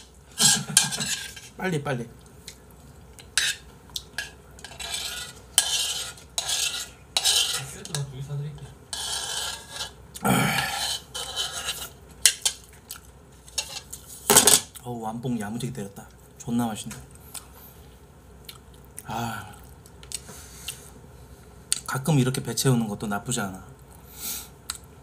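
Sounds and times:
metal spoon scraping a bowl: 0.0s - 1.6s, 3.3s - 3.6s, 4.2s - 8.1s, 8.9s - 10.0s, 10.6s - 12.6s, 13.5s - 14.0s.

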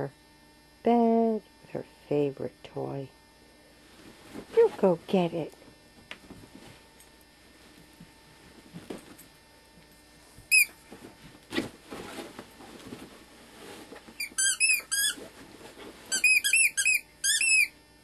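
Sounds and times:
squeaky dog toy squeaking: 10.5s - 10.7s, 14.2s - 15.2s, 16.1s - 17.7s.

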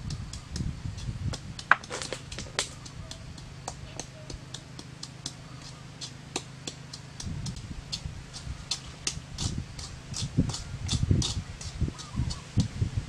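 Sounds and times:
hands handling shell and knife: 1.7s - 2.8s.

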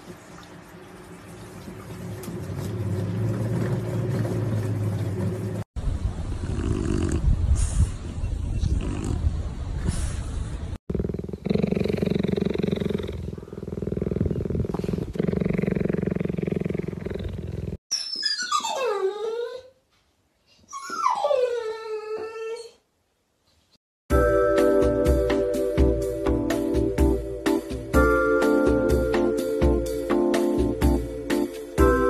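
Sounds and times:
cheetah purring: 6.4s - 7.3s, 10.9s - 17.8s
dog whining: 17.9s - 19.8s, 20.6s - 22.9s
music: 24.1s - 32.0s.

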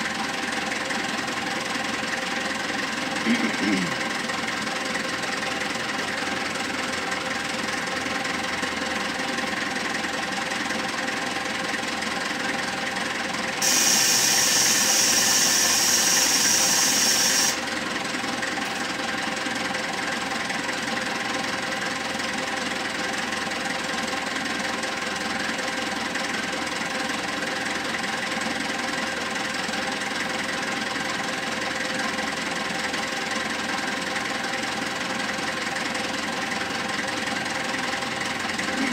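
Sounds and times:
diesel engine idling: 0.0s - 38.9s
loud hiss: 13.6s - 17.6s.

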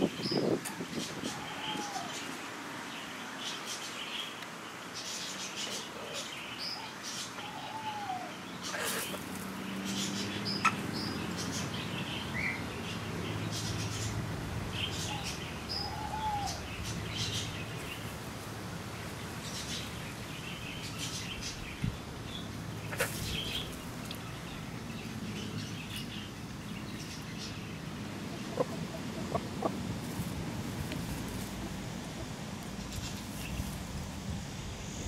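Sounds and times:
birds chirping: 0.0s - 18.2s, 18.8s - 33.9s
hens calling softly: 28.1s - 32.4s.

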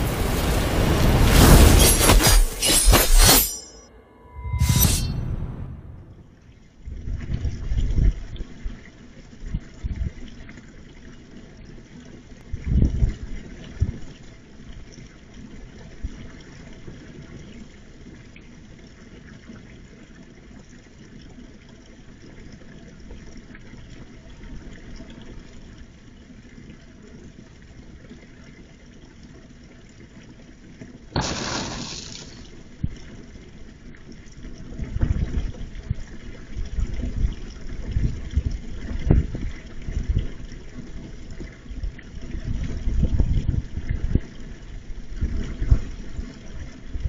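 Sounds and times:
outdoor hiss and rumble: 0.0s - 2.2s
low rumbling: 3.6s - 7.6s.

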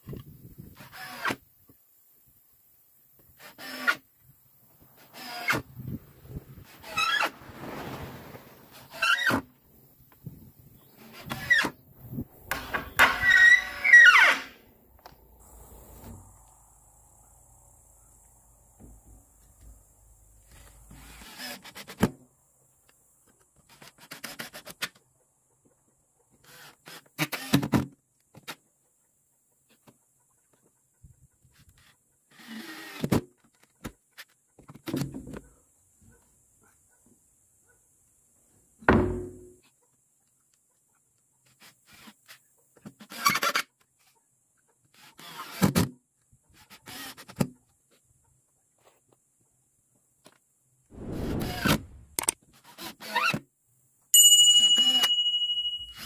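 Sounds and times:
cordless drill boring into wood: 0.8s - 1.4s, 3.4s - 4.0s, 5.0s - 5.6s, 12.5s - 14.6s, 20.9s - 21.9s, 26.4s - 27.7s, 32.3s - 33.1s, 45.0s - 45.7s, 46.6s - 47.4s
wooden planks scraping and knocking: 4.9s - 9.6s.

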